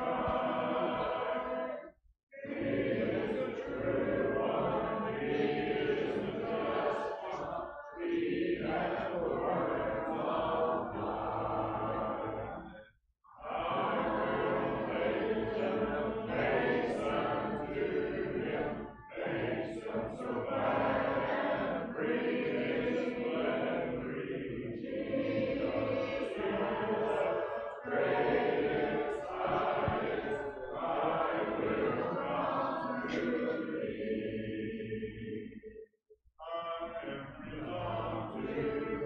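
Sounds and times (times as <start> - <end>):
congregation singing a hymn: 0.0 - 35.7, 36.4 - 39.0.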